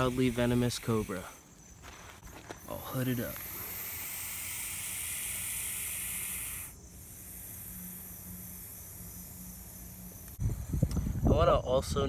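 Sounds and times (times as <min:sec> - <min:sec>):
snake hissing: 0:00.0 - 0:01.6, 0:02.6 - 0:11.3.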